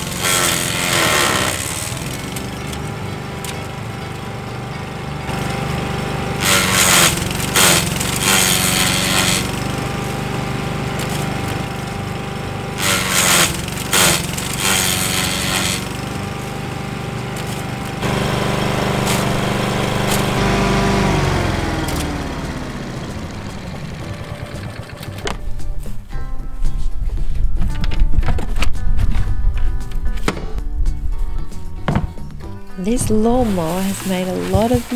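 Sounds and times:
blade shredding branches: 0:00.0 - 0:25.4, 0:32.8 - 0:34.9
lawn mower engine running: 0:00.0 - 0:26.1, 0:32.8 - 0:34.9.

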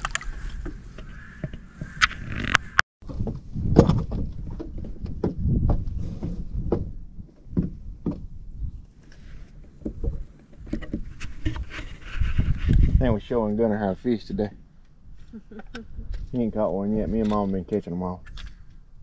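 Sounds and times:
handling knocks and taps: 0:03.1 - 0:08.4.

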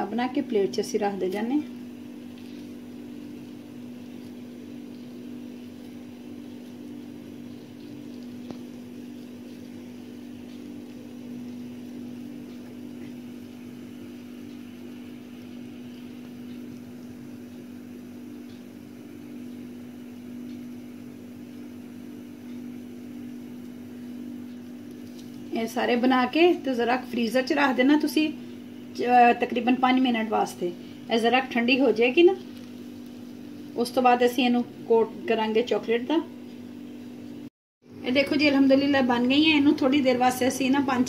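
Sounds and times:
low mechanical hum: 0:00.0 - 0:41.0.

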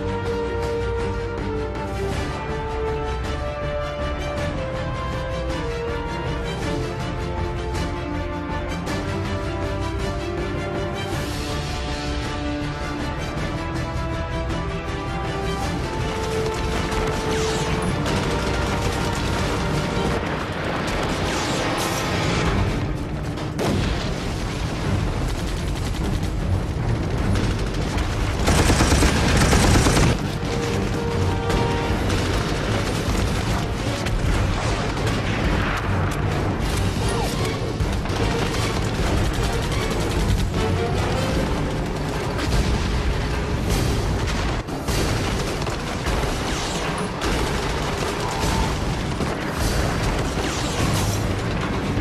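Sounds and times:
background music: 0:00.0 - 0:52.0
rifle shots: 0:27.4 - 0:52.0
machine-gun bursts: 0:28.3 - 0:35.5, 0:37.4 - 0:42.6.

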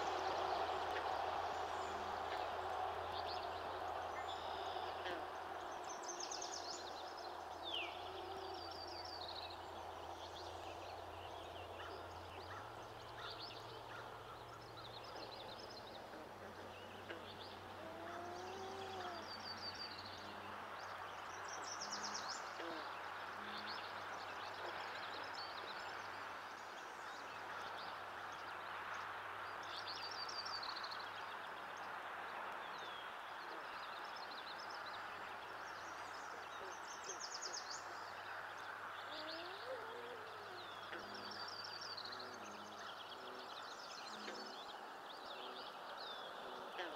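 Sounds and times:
steady hiss: 0:00.0 - 0:15.2
songbirds trilling and chirping: 0:00.0 - 0:46.9.

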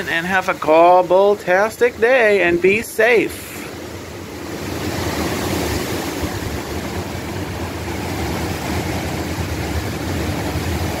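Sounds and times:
storm wind and rain: 0:00.0 - 0:11.0
wind buffeting microphone: 0:03.8 - 0:11.0.

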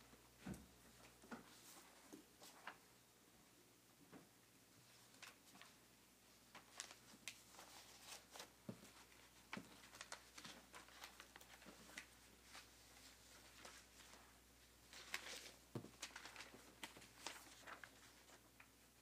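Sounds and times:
paper rustling: 0:06.5 - 0:18.7.

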